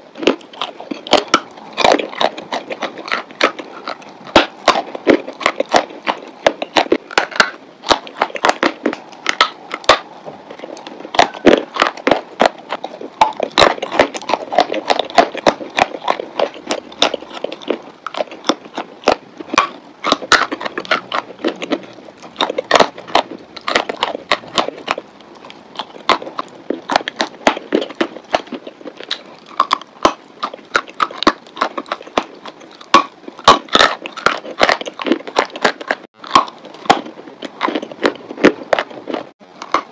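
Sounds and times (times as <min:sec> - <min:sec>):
chalk being chewed: 0:00.2 - 0:39.9.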